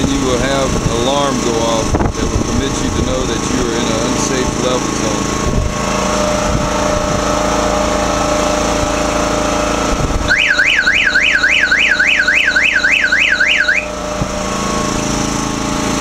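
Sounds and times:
engine running: 0.0s - 16.0s
warbling electronic alarm tone: 10.3s - 14.0s.

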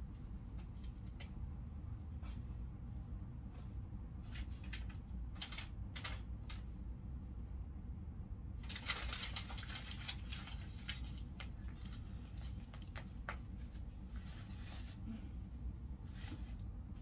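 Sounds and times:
broom sweeping tiled floor: 10.2s - 15.1s, 16.0s - 16.6s.

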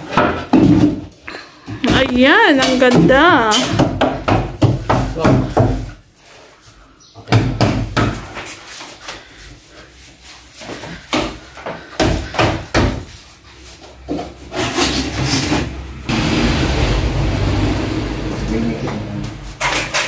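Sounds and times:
wooden cabinet knocking and scraping: 0.0s - 6.0s.

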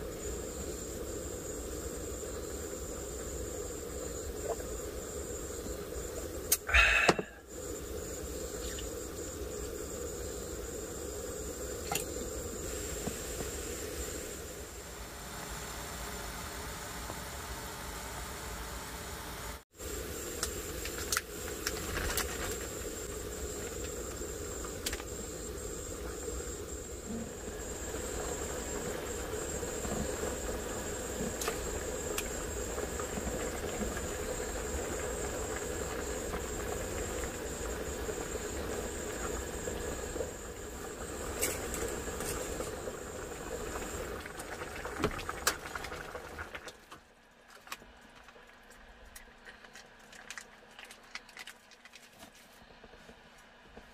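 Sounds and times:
gas burner flame hissing: 0.0s - 46.6s
broth bubbling: 22.6s - 46.8s.

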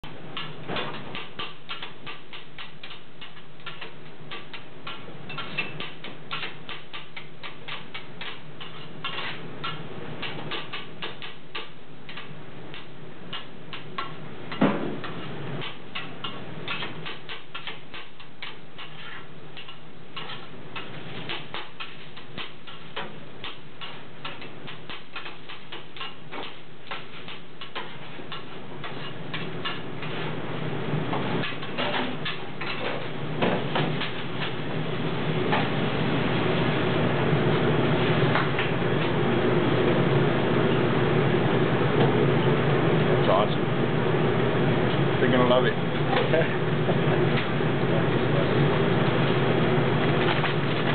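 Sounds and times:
metal spatulas clattering on griddle: 15.0s - 30.2s.

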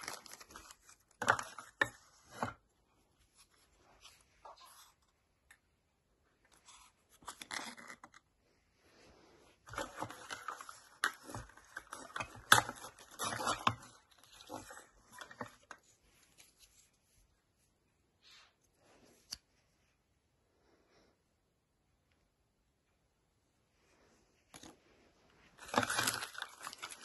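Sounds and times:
plastic wrapping crinkling: 25.6s - 27.0s.

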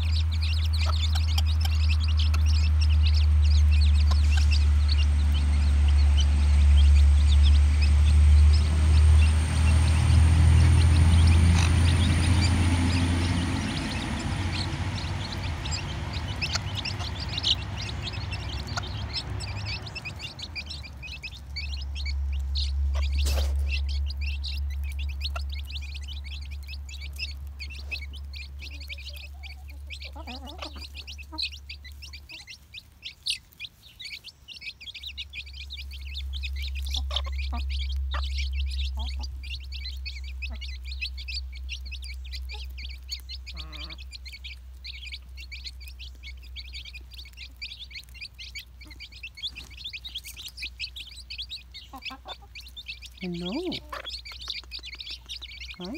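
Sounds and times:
low microphone rumble: 0.0s - 32.5s
chicks peeping: 0.0s - 55.9s
hen clucking: 0.0s - 55.9s.

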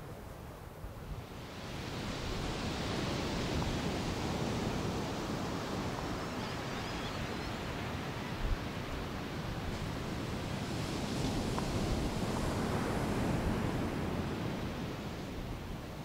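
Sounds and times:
wind: 0.0s - 16.0s
surf washing on beach: 0.3s - 16.0s.

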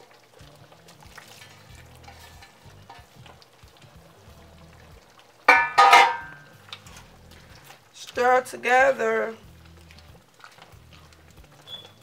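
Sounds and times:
soup simmering: 0.0s - 12.0s
spatula stirring in metal pot: 0.2s - 12.0s
loud metallic clanks: 5.5s - 6.4s.

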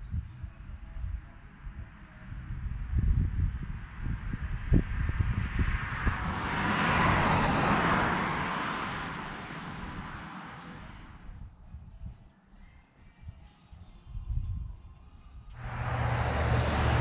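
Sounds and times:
wind rumbling on microphone: 0.0s - 12.3s, 13.0s - 17.0s
road vehicle passing: 2.2s - 11.2s, 15.6s - 17.0s.

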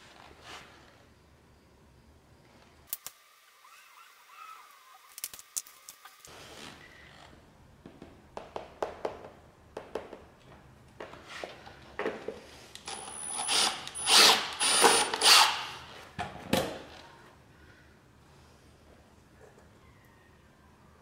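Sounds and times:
cordless drill running: 12.8s - 16.0s.

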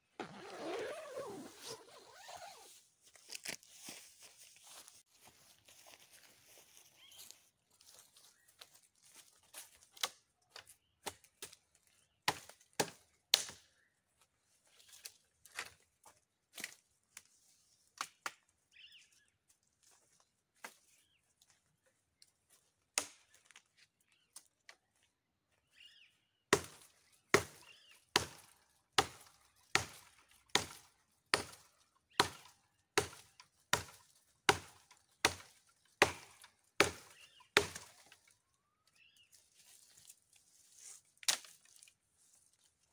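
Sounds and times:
machete chopping wood: 12.3s - 13.6s, 26.5s - 38.1s.

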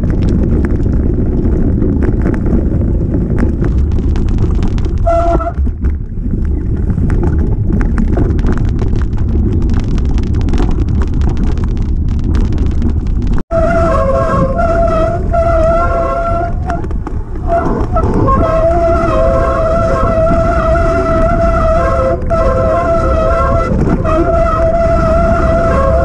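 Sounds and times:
low rumble: 0.0s - 26.0s
wind buffeting microphone: 0.0s - 26.0s
high squeal: 17.5s - 26.0s.

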